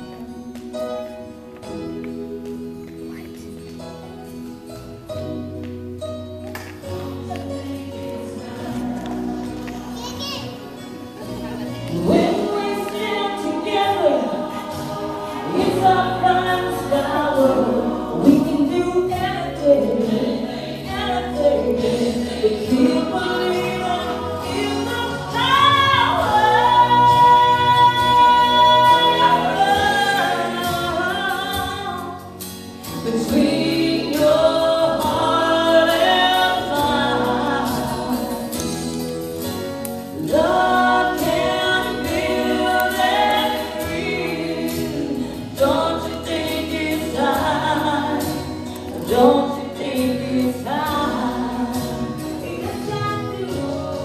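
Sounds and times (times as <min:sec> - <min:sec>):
choir-like backing voices: 0:00.0 - 0:54.0
solo voice singing: 0:11.7 - 0:32.4, 0:33.0 - 0:38.7, 0:40.2 - 0:54.0.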